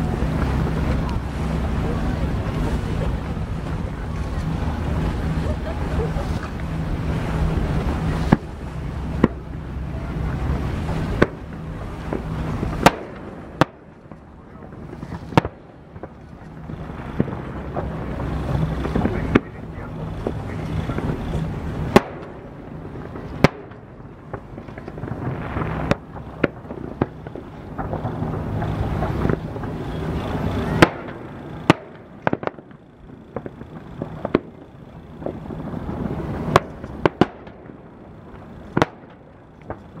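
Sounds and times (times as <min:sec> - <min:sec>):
firework shells bursting: 0:10.8 - 0:40.0.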